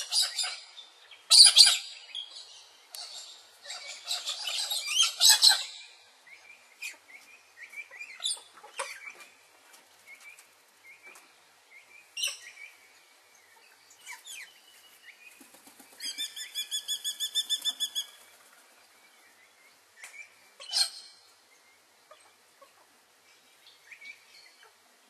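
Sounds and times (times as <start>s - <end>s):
birds chirping and whistling: 0.0s - 6.0s, 16.0s - 18.2s.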